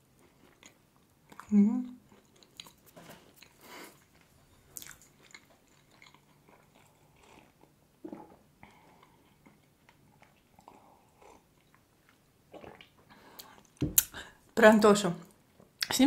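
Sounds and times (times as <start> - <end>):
person chewing: 0.0 - 14.2
sipping and swallowing: 4.8 - 9.6, 12.5 - 14.2.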